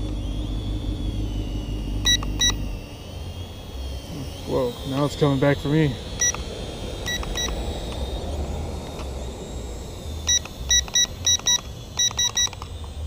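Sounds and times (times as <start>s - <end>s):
short high electronic beeps: 2.0s - 2.7s, 10.3s - 12.6s.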